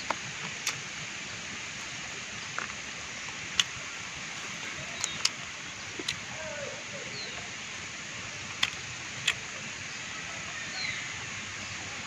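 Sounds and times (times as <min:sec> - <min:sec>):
background hiss: 0:00.0 - 0:12.0
sharp clicks: 0:08.6 - 0:09.4.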